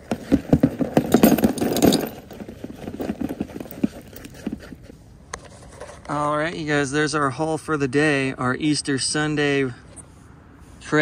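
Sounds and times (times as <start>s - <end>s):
small metal objects clattering: 0.4s - 4.0s.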